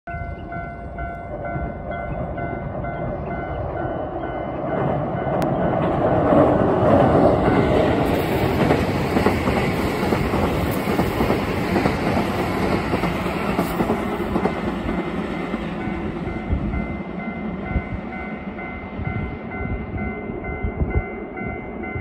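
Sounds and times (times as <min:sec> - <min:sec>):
faint level-crossing bell: 0:00.1 - 0:06.0, 0:14.4 - 0:22.0
electric train passing: 0:00.1 - 0:22.0.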